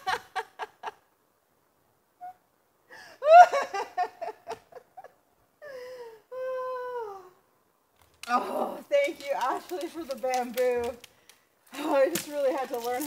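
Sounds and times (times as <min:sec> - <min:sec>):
person laughing: 0:03.2 - 0:06.0.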